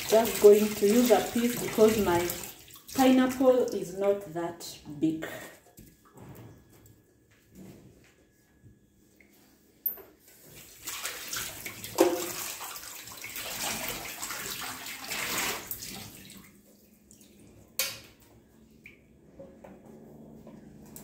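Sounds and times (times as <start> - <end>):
tap water spattering on plate: 11.9 - 12.4.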